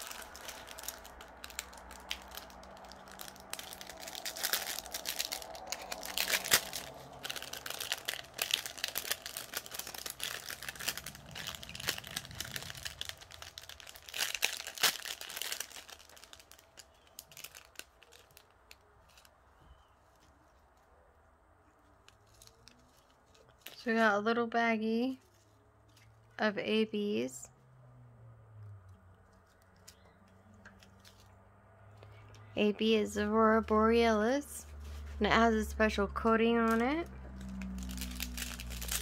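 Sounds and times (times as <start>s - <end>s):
plastic packaging crinkling: 0.0s - 20.8s, 21.8s - 24.0s, 36.6s - 39.0s.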